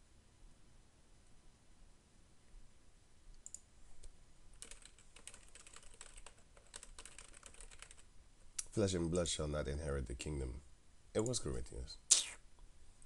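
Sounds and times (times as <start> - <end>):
computer keyboard typing: 4.6 - 8.1.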